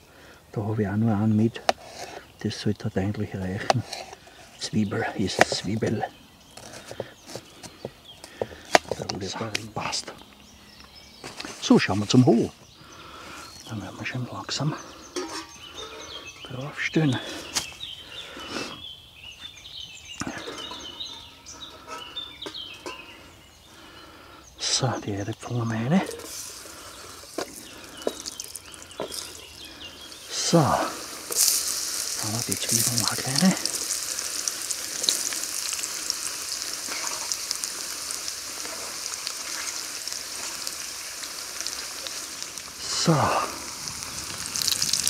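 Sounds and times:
songbirds chirping and singing: 0:00.0 - 0:45.0
small crackles: 0:03.6 - 0:12.3, 0:26.0 - 0:45.0
potatoes sizzling in frying pan: 0:26.1 - 0:45.0.

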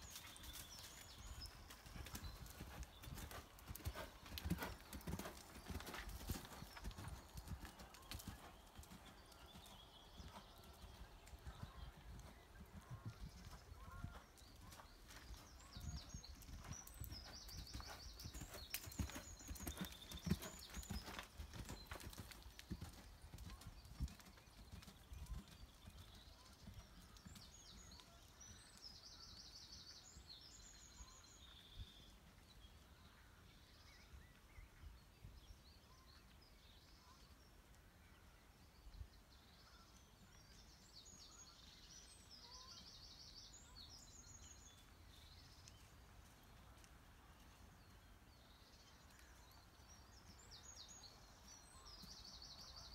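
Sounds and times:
hoofbeats on sand: 0:00.0 - 0:25.6.

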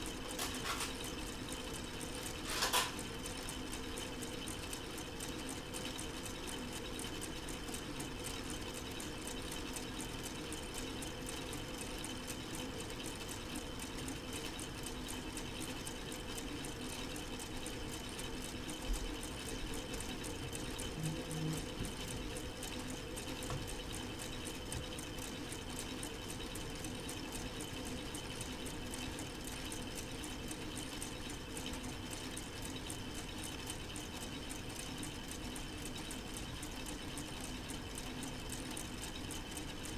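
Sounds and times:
steady hum: 0:00.0 - 0:29.4
plastic model engine clattering: 0:02.5 - 0:03.0.

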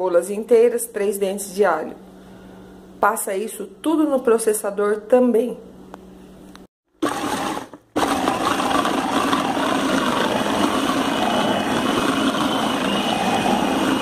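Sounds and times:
food processor grinding meat: 0:07.0 - 0:14.0
faint high whine: 0:09.4 - 0:14.0.

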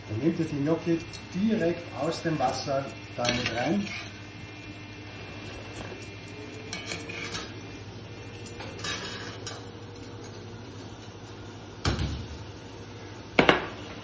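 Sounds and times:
steady low hum: 0:00.0 - 0:14.0
metal utensils scraping steel pans: 0:03.2 - 0:04.2, 0:06.7 - 0:07.5, 0:08.8 - 0:09.7.

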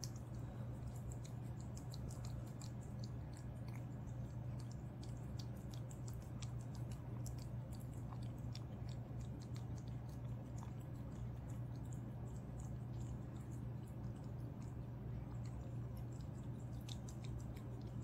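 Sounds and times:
cat chewing wet food: 0:00.0 - 0:18.0
steady low hum: 0:00.0 - 0:18.0.

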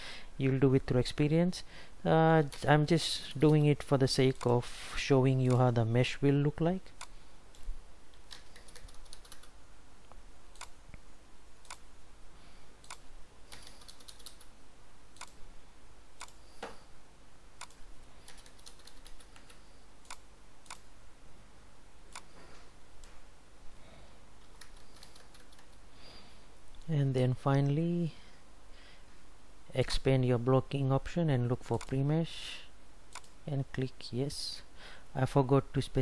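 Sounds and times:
computer keyboard keys clicking: 0:07.6 - 0:09.5, 0:12.8 - 0:14.5, 0:17.6 - 0:20.8, 0:24.4 - 0:25.8.

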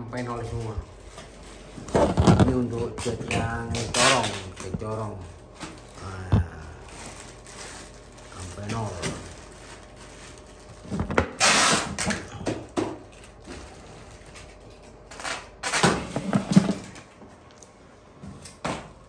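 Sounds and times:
packing tape pulled off roll: 0:00.6 - 0:05.0, 0:05.6 - 0:12.4, 0:13.1 - 0:16.2.

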